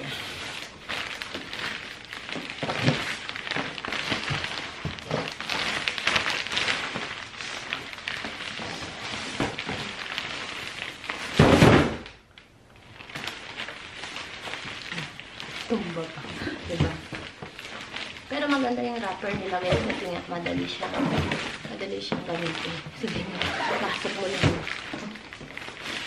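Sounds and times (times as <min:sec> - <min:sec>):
gift wrap rustling: 0:00.0 - 0:26.0
loud thump: 0:11.4 - 0:12.1.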